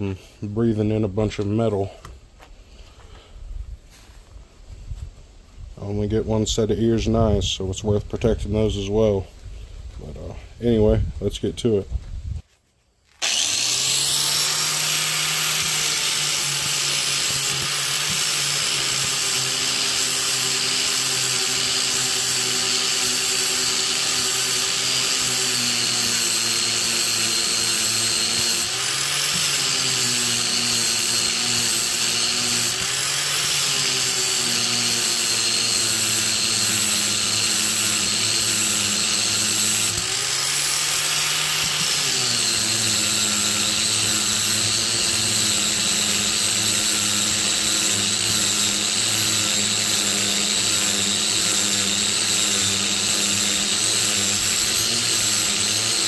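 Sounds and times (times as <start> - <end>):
angle grinder grinding steel: 13.1 - 56.0.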